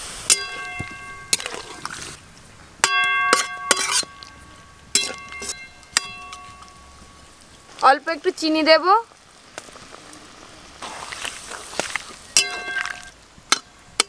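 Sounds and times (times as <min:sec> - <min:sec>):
metal spatula clanking on pan: 0:00.3 - 0:01.8, 0:02.8 - 0:07.2, 0:12.4 - 0:14.0.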